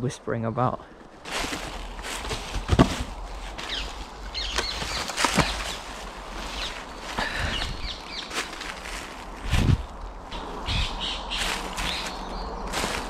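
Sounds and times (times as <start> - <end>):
dull knocks of logs: 1.3 - 6.0
small birds chirping: 3.5 - 9.3, 10.2 - 13.0
wind on microphone: 9.3 - 12.0.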